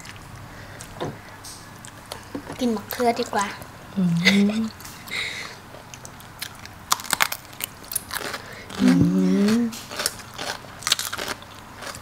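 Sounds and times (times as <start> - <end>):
person humming: 3.9 - 4.7, 8.8 - 9.8
crunchy chewing of raw vegetables: 5.8 - 12.0.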